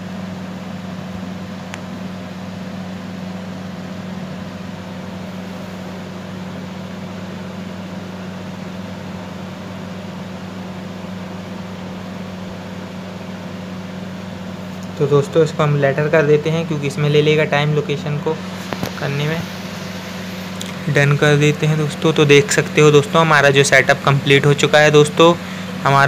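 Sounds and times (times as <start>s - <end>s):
steady low hum: 0.0s - 26.0s
constant hiss: 14.0s - 26.0s.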